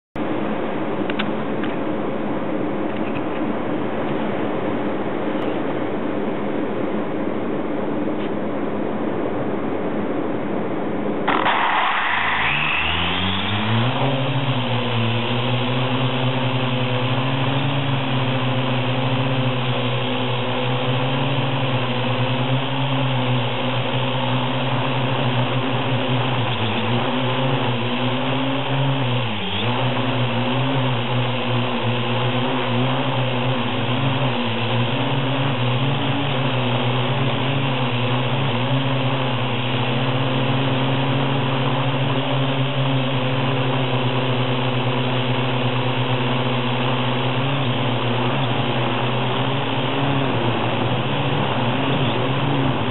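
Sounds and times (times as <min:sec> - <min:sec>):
drone rotor motors whining: 0:11.1 - 0:52.9.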